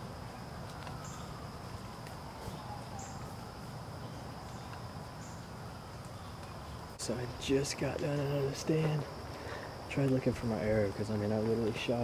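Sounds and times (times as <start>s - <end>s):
insects chirring drone: 0.0s - 12.0s
short high insect chirp: 2.6s - 7.0s.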